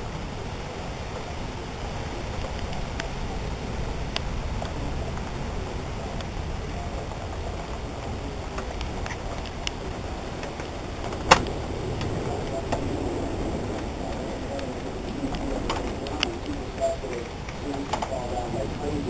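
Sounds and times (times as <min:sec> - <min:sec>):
low rumble and hiss: 0:00.0 - 0:19.0
faint ticks: 0:02.3 - 0:03.2, 0:07.0 - 0:12.9, 0:13.6 - 0:18.9.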